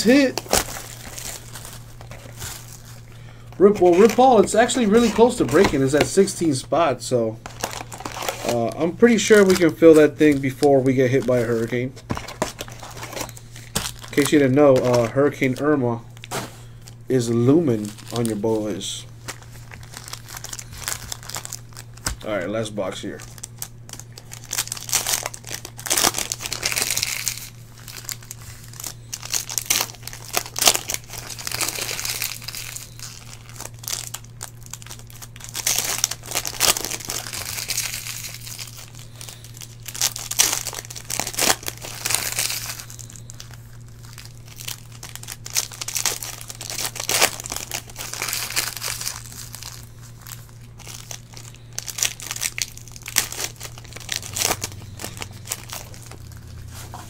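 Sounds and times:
foil wrappers tearing and crinkling: 0.0 - 6.6, 7.4 - 57.0
low steady hum: 0.0 - 57.0.

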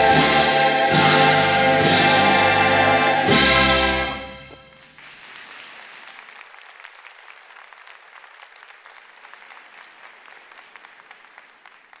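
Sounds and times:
audience applauding: 2.1 - 12.0.

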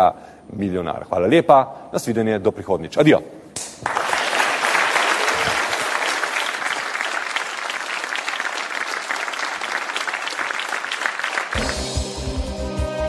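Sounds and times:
audience applauding: 3.8 - 11.9
closing theme music: 11.5 - 13.0.

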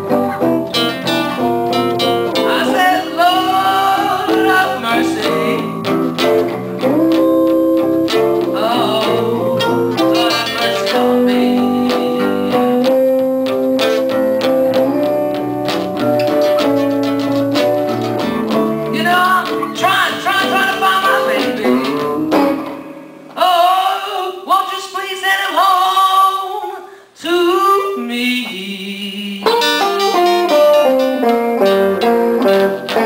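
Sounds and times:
live blues guitars: 0.0 - 33.0.

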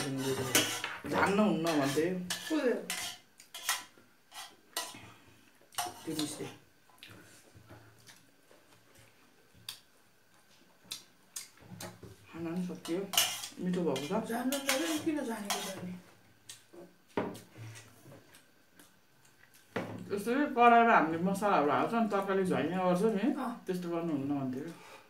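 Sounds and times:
metal spoons clinking on steel bowls: 12.8 - 15.8.

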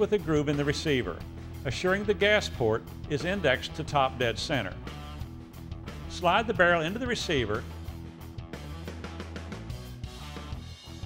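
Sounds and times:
instrumental music with steady beat: 4.7 - 11.0.

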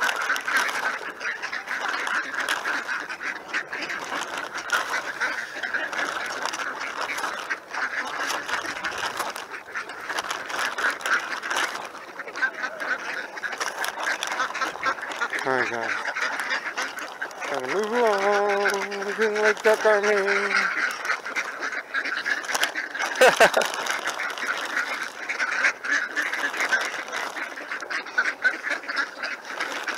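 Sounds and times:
ducks quacking: 0.0 - 29.9.

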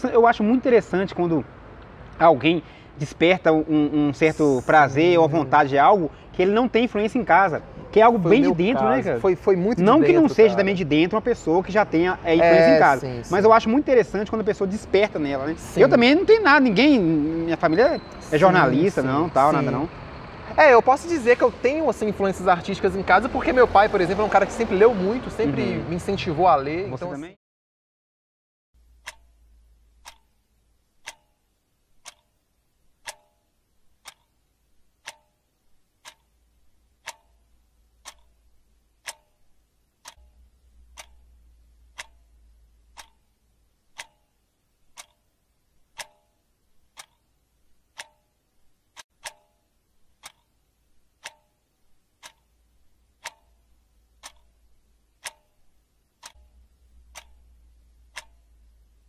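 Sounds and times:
wall clock ticking: 3.0 - 26.3, 28.8 - 59.0.

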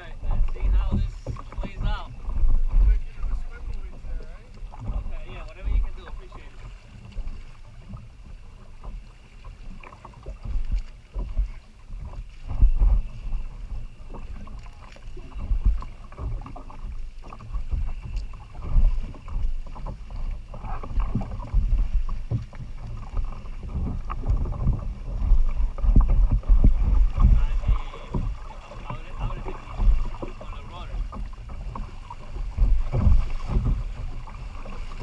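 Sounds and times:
water lapping against hull: 0.0 - 35.0
wind buffeting microphone: 0.0 - 35.0.

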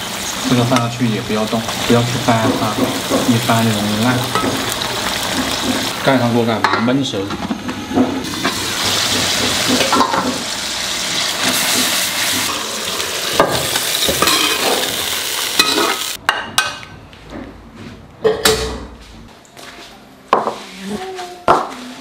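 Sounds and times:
sauce sizzling and bubbling: 0.0 - 6.5, 8.2 - 16.2
metal spatula scraping wok: 11.1 - 12.7.

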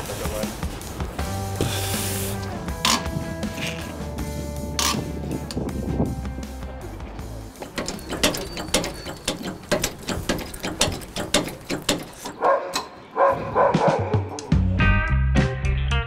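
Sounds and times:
ratchet wrench clicking: 7.6 - 12.4.

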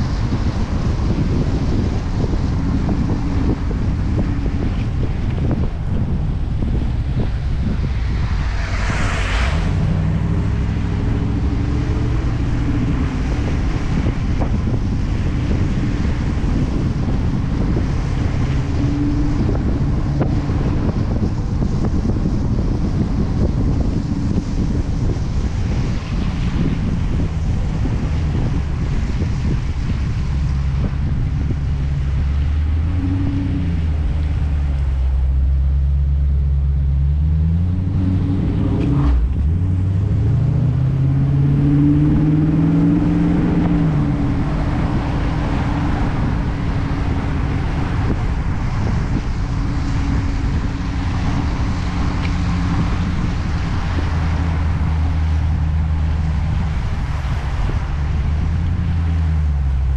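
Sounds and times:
car engine running: 0.0 - 59.9
wind noise: 0.0 - 59.9.

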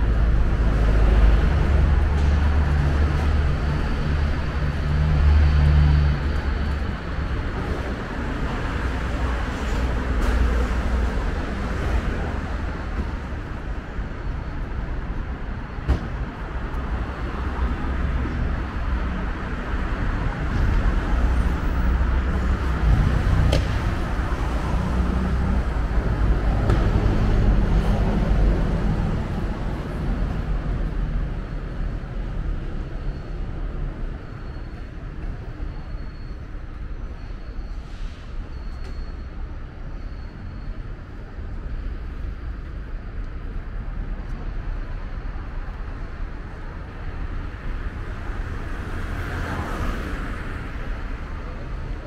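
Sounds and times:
traffic rumble: 0.0 - 52.0
vehicles passing: 0.0 - 52.0.

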